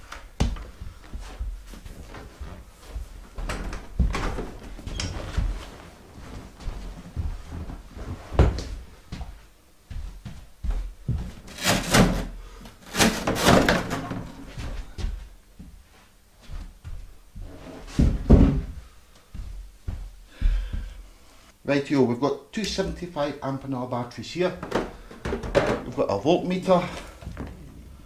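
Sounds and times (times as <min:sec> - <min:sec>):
hollow plastic knocks and thumps: 0:24.6 - 0:26.0.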